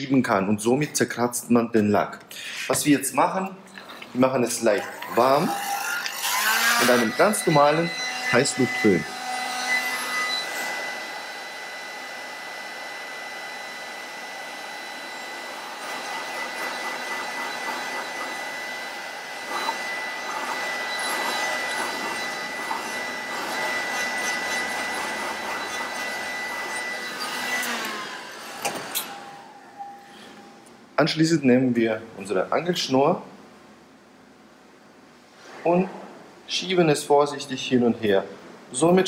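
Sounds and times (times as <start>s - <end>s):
hot-air gun fan whining: 2.2s - 30.9s.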